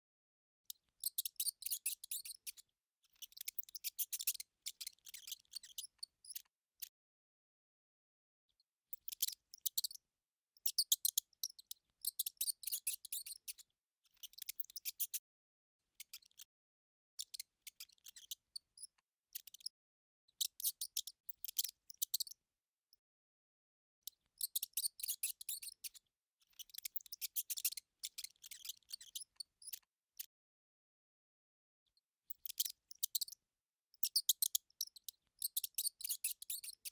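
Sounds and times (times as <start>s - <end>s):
mouse chattering: 0.7s - 2.6s, 3.2s - 6.9s, 8.9s - 10.0s, 10.6s - 13.6s, 14.2s - 15.2s, 17.2s - 19.7s, 20.4s - 22.3s, 24.4s - 29.9s, 32.3s - 33.4s, 34.0s - 36.9s.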